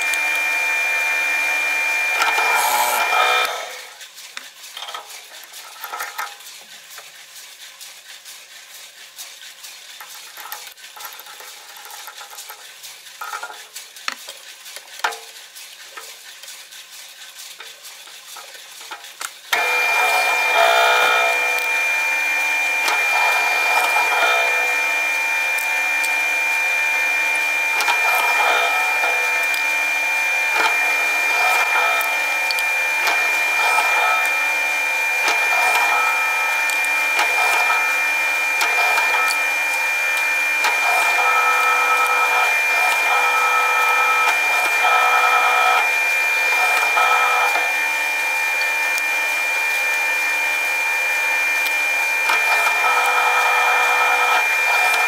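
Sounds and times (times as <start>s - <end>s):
drill press motor whine: 0.0s - 4.0s, 19.5s - 55.0s.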